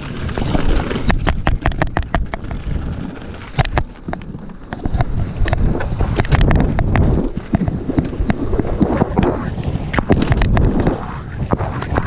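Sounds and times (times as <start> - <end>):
mountain bike knocking over rocks: 0.0 - 9.0
wind rumble on microphone: 0.0 - 12.0.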